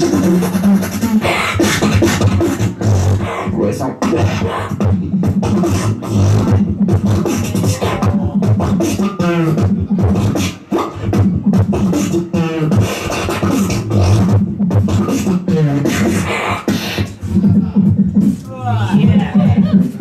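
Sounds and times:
beatboxing into a microphone: 0.0s - 20.0s
pitched vocal sweeps: 3.2s - 11.2s.

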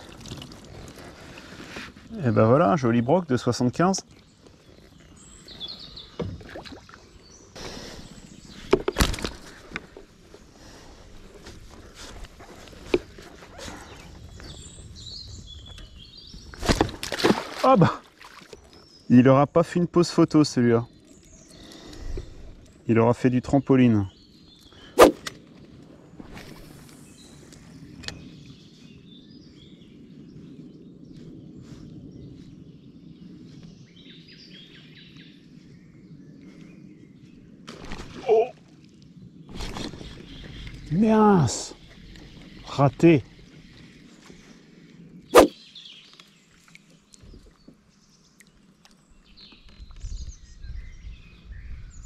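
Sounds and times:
fish thrashing and splashing: 0.0s - 1.0s, 16.6s - 18.6s.

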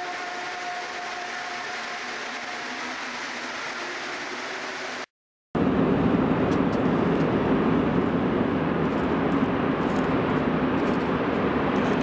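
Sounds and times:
low rumble of metro station: 0.0s - 5.0s, 5.6s - 12.0s
low hum: 0.0s - 12.0s.

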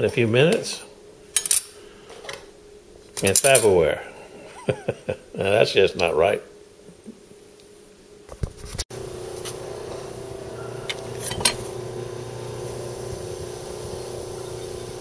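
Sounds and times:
steady machine hum: 8.9s - 15.0s.

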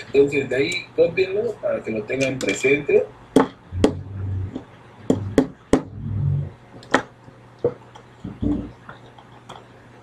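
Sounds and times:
faint low hum: 0.0s - 10.0s
sharp knocks and clicks: 3.4s - 6.0s
muffled low thumps: 3.7s - 6.6s.

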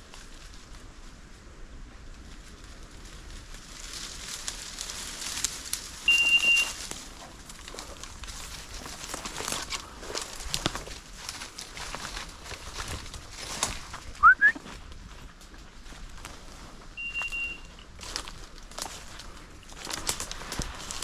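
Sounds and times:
dry undergrowth crackling and rustling: 0.0s - 21.0s.

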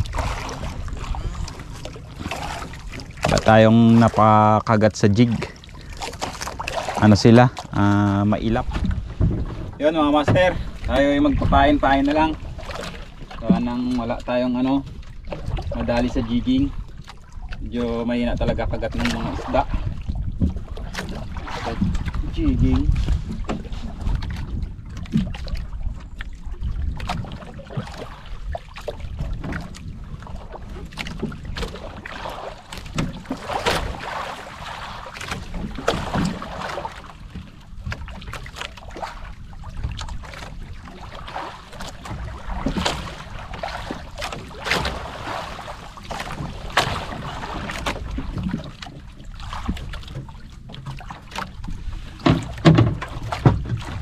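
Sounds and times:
wind rumble on microphone: 0.0s - 5.5s, 7.0s - 32.2s
water lapping against hull: 0.0s - 54.0s.

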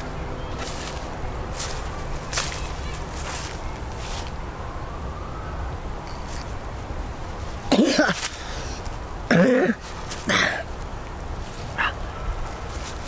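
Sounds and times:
man coughing: 7.7s - 8.3s, 9.3s - 10.7s.

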